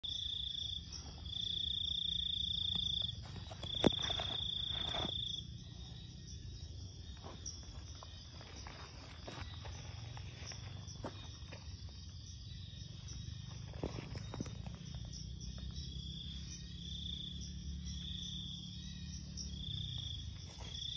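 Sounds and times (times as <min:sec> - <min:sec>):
cricket trilling: 0:00.0 - 0:20.9.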